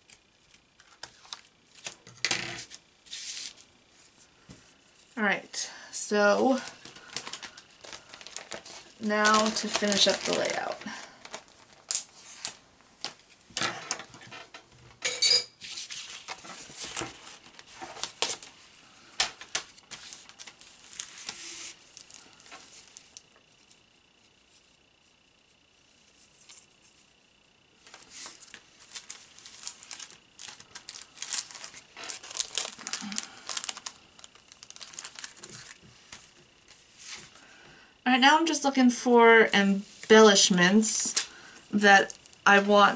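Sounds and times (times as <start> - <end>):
packaging and paper crinkling: 0.8 - 3.6, 6.5 - 13.2, 15.8 - 23.4, 27.8 - 36.4.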